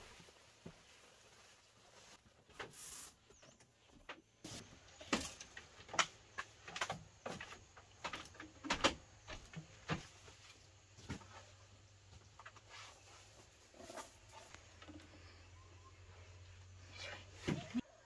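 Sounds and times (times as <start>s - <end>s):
bamboo knocking and clacking: 5.0s - 10.0s.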